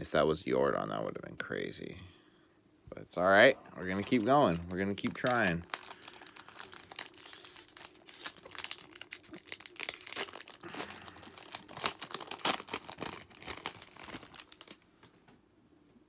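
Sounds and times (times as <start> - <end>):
foil wrapper crinkling and tearing: 3.8 - 14.9.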